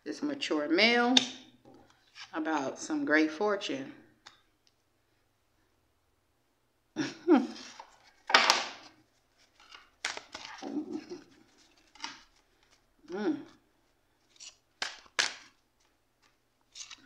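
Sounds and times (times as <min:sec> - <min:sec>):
cards rustling and sliding: 0:07.6 - 0:12.9, 0:14.2 - 0:17.0.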